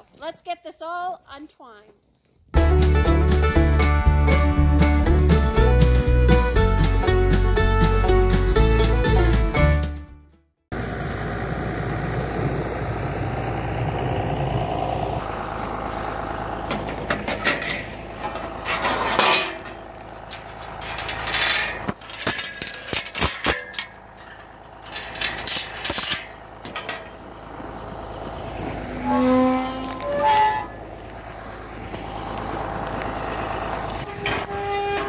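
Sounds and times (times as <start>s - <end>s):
chain rattling against metal gate: 17.1s - 27.1s.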